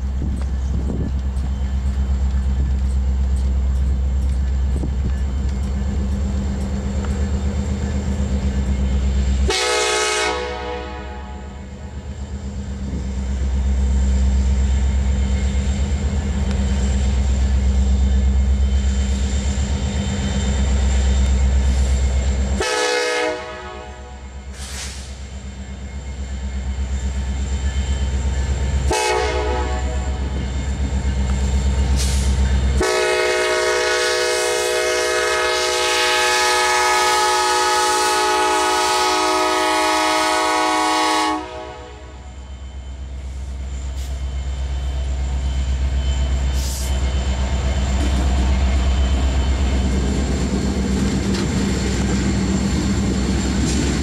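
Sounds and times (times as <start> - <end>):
diesel locomotives rumbling past: 0.0 - 54.0
train air horn blasts: 9.4 - 11.6, 22.6 - 25.0, 28.9 - 30.3, 32.8 - 42.3.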